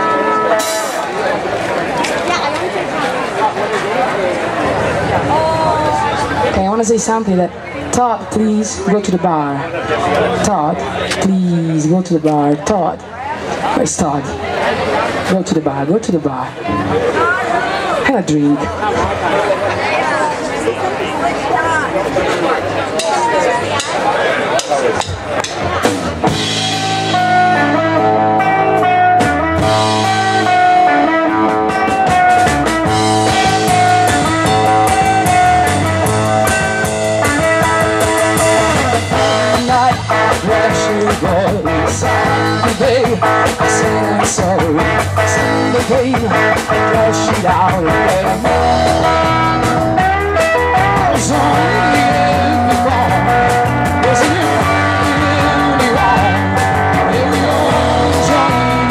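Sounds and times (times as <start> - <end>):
drum kit: 0.5 - 1.2, 24.6 - 58.9
electric guitar: 24.8 - 58.9
electric bass: 25.0 - 58.9
woman singing: 54.1 - 56.4.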